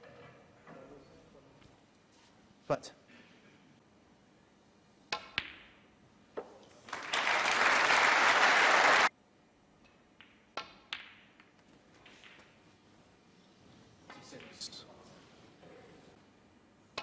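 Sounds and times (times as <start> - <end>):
audience applause: 6.9 - 9.1
snooker balls clicking: 9.9 - 12.6.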